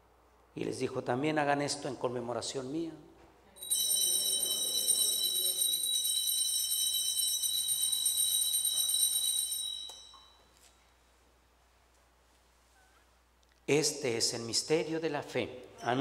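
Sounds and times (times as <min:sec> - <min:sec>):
altar bells ringing: 0:03.6 - 0:10.6.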